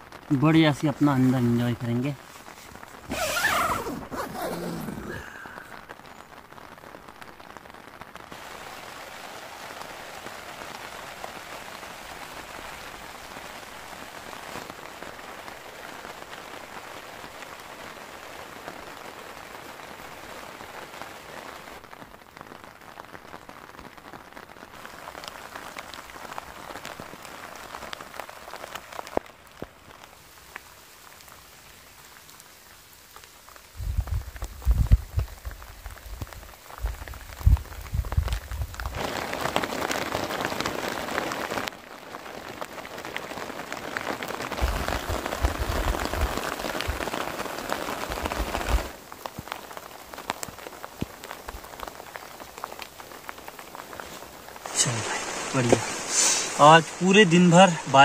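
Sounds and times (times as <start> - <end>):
rain falling on tent fabric: 0.0 - 58.0
single raindrop hits: 43.9 - 58.0.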